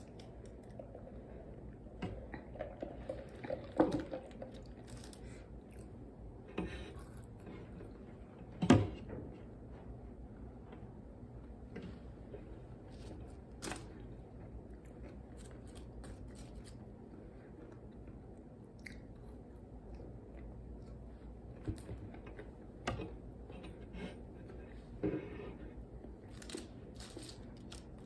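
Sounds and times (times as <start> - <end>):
person chewing french fries: 4.2 - 6.2, 6.9 - 8.0, 13.5 - 21.1.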